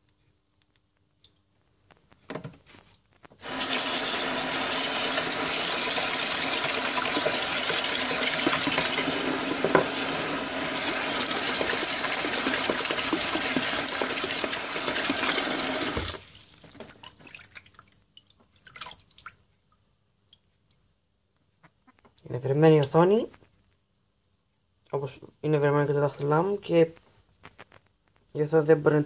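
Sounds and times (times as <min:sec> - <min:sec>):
water dripping: 0:00.6 - 0:01.5, 0:10.7 - 0:21.0
tap water pouring into sink: 0:03.4 - 0:17.6
small water splashes: 0:16.1 - 0:19.9.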